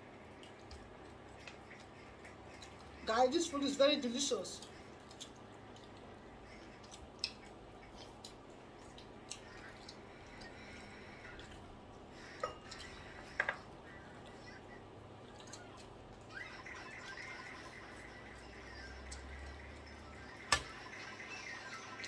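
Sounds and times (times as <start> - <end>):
soft chewing and mouth smacks: 0.0 - 3.0, 4.6 - 16.4
faint low room hum: 0.0 - 22.0.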